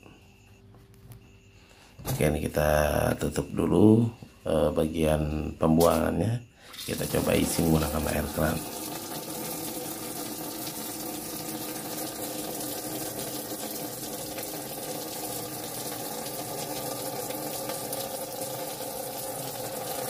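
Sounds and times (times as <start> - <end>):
water pouring into plastic tub: 6.7 - 20.0.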